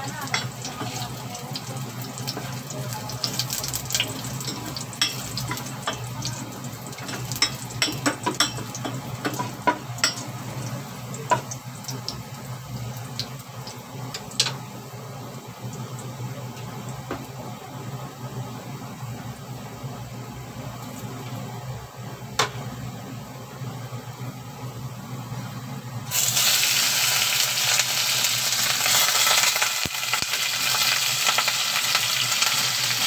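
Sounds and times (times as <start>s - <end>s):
garlic sizzling in oil: 0.0s - 22.9s, 26.0s - 33.0s.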